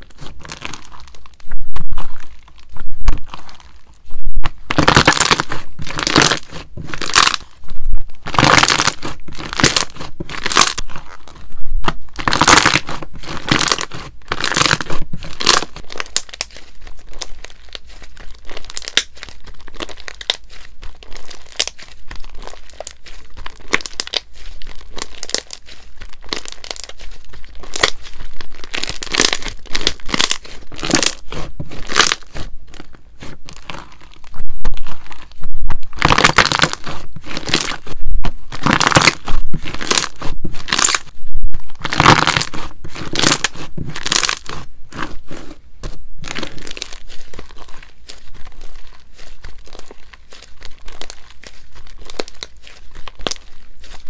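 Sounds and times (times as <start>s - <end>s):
slime crackling and tearing: 0.0s - 54.0s.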